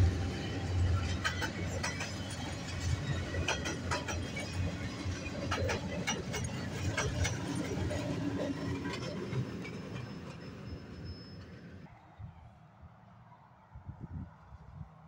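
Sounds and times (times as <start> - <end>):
train wheels clacking over rails: 0.0 - 11.6
freight train cars rolling: 0.0 - 11.9.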